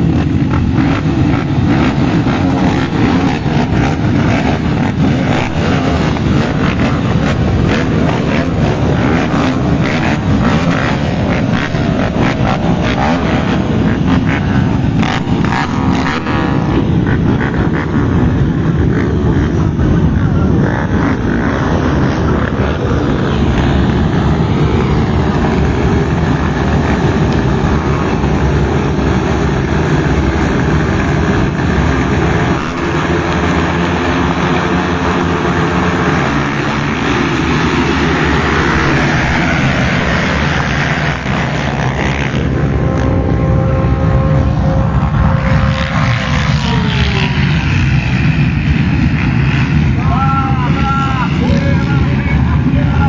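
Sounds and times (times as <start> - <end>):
motocross bikes revving and accelerating: 0.0 - 53.0.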